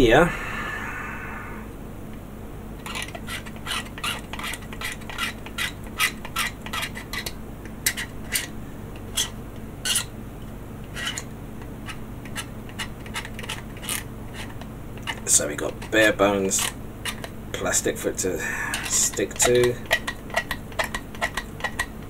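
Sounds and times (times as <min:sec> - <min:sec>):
scraping on hard plastic: 0:18.7 - 0:22.0.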